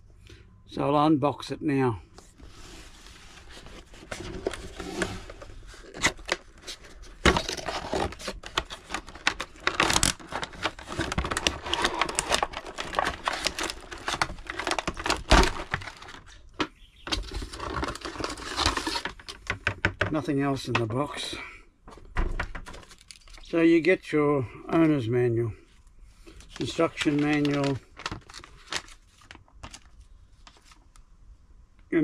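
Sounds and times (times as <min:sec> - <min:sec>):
packaging rustling and crinkling: 0:02.2 - 0:20.1, 0:22.4 - 0:23.6, 0:25.7 - 0:31.0.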